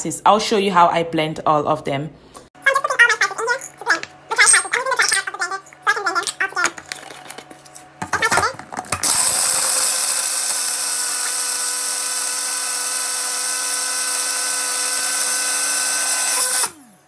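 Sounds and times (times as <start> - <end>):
blender grinding spices: 8.2 - 17.0.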